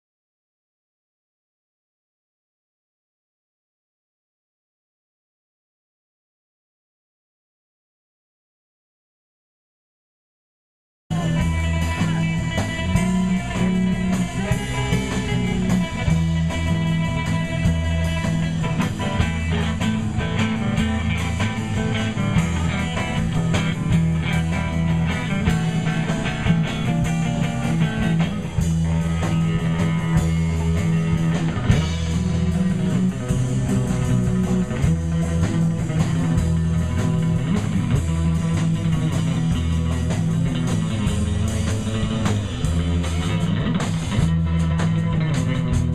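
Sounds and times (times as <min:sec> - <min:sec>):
bass guitar: 0:11.1 - 0:45.9
drums with steady beat: 0:11.1 - 0:45.9
electric guitar: 0:11.1 - 0:45.9.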